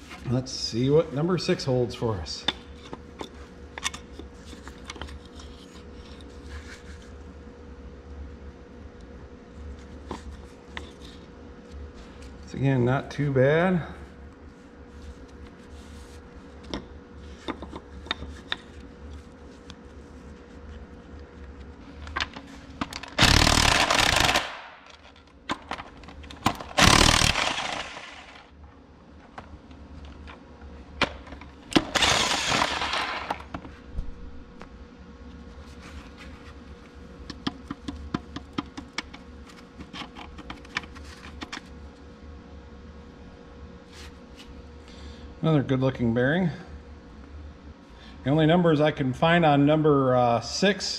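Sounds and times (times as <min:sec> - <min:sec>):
power wrench bursts: 0:23.0 - 0:24.8, 0:26.5 - 0:28.5, 0:31.8 - 0:33.4.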